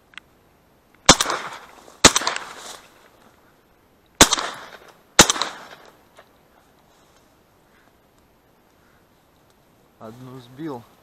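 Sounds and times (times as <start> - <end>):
shotgun shots: 1.1 - 2.6, 4.2 - 5.9.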